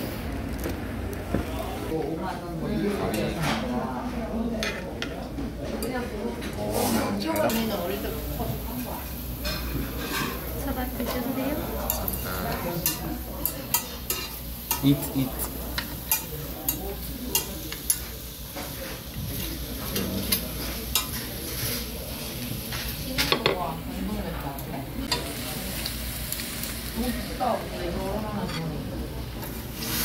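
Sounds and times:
meat sizzling on a grill plate: 6.8 - 23.6, 25.0 - 28.5, 29.4 - 30.0
metal tongs clicking on pan: 12.8 - 18.0.

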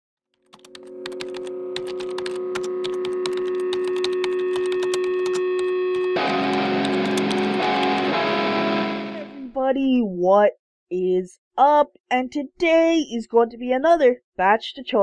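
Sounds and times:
keyboard typing clicks: 0.4 - 8.1
steady held tone: 0.5 - 9.5
music: 0.6 - 9.6.

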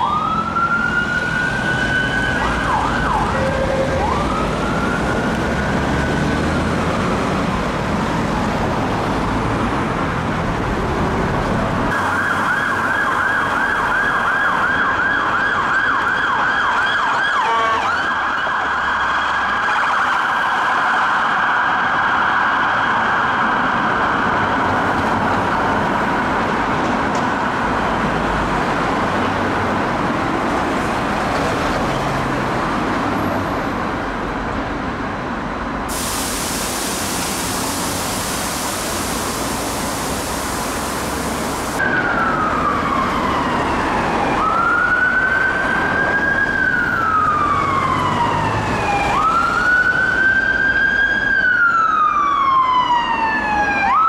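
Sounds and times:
ambulance siren wailing: 0.0 - 7.6, 11.9 - 26.5, 37.7 - 54.0
street traffic: 0.0 - 54.0.

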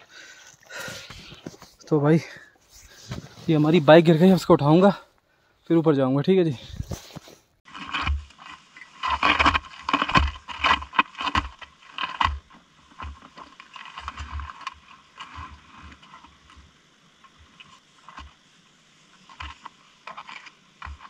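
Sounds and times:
motorcycle scraping on rocky ground: 6.6 - 16.7.

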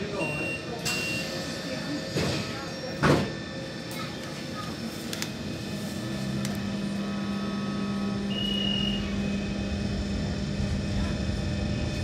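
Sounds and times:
tram motor humming: 0.0 - 12.0
short high beep: 8.3 - 9.1.

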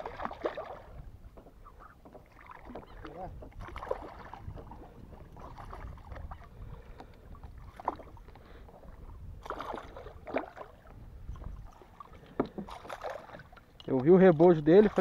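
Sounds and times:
fish splashing in water: 0.0 - 1.0, 2.2 - 4.6, 9.4 - 11.0, 11.6 - 13.7
low steady rumble: 3.1 - 15.0.

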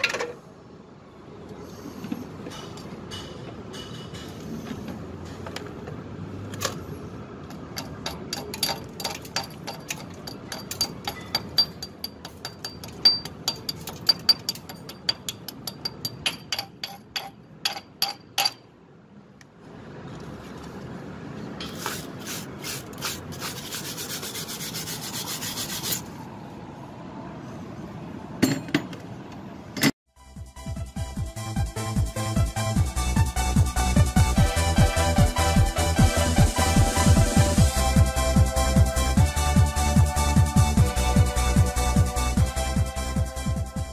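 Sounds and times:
hammer tapping on metal: 2.4 - 4.4, 7.4 - 18.7
scratchy scrubbing of metal: 21.6 - 26.1.

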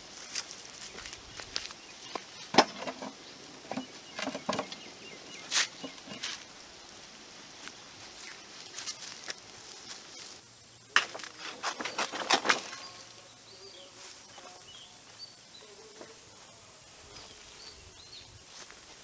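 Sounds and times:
faint insect buzz: 0.0 - 19.0
leaf rustling and crackling: 0.0 - 19.0
faint chirps: 8.1 - 18.9.

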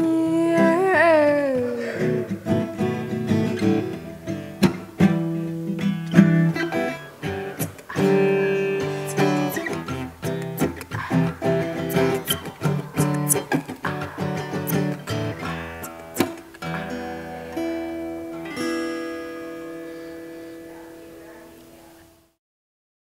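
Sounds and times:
woman singing held note: 0.0 - 2.0
acoustic guitar playing: 0.0 - 22.4.

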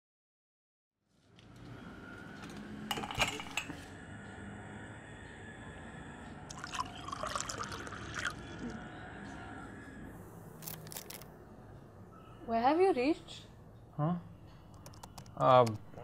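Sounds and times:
liquid splashing and pouring: 6.5 - 8.6.

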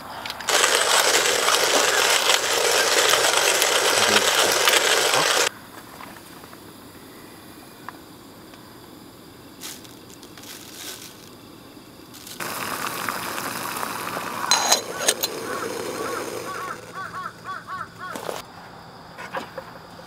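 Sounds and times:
gas stove burner hissing: 0.0 - 5.5, 11.4 - 18.4
hot water glugging from kettle: 0.5 - 5.5, 12.4 - 17.0
metal kettle clinking: 14.4 - 16.7.

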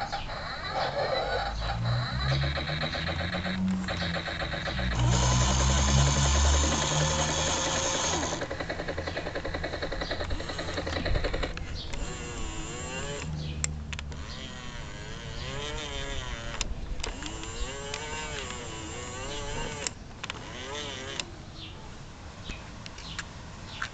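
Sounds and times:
wavering electronic tone: 1.2 - 8.5
toy helicopter chopping noise: 1.6 - 21.3
sharp clicks: 1.7 - 21.3.

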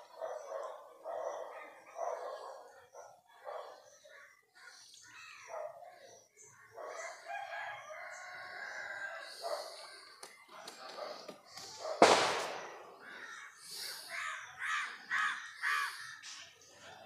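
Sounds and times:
rooster crowing: 7.0 - 9.4
faint bird calls: 12.6 - 17.0.

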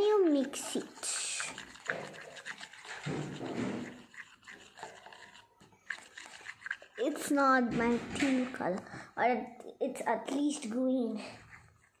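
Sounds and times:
stick scraping plastic container: 0.0 - 8.8.

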